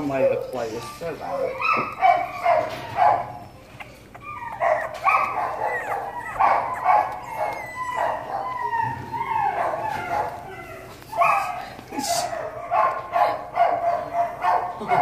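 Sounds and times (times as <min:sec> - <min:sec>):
puppy whining and yipping: 0:00.0 - 0:11.7.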